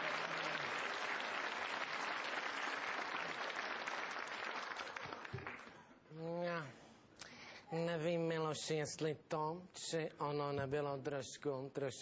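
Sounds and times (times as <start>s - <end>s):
audience applauding: 0.0s - 5.8s.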